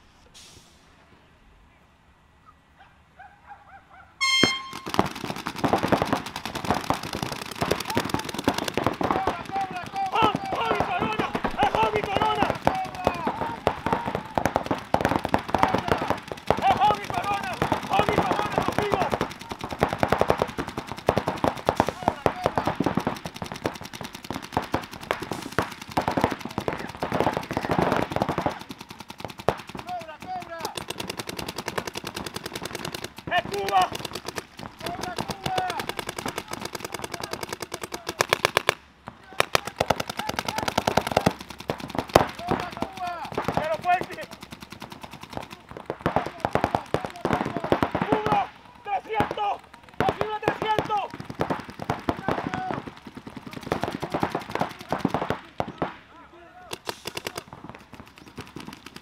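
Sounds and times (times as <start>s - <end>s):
air horn blast: 4.2s - 4.8s
paintball markers firing: 4.2s - 59.0s.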